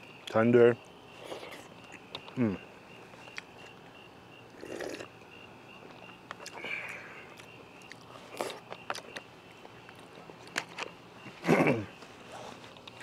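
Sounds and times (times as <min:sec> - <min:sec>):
insect chirping: 0:00.0 - 0:13.0
person chewing food: 0:04.5 - 0:05.1, 0:05.8 - 0:10.9.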